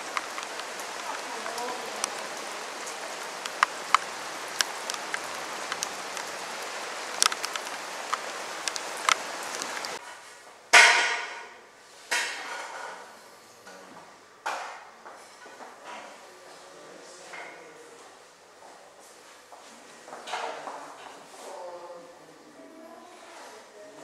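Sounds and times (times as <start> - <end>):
rain hissing on street: 0.0 - 10.0
raindrops ticking: 0.0 - 10.0.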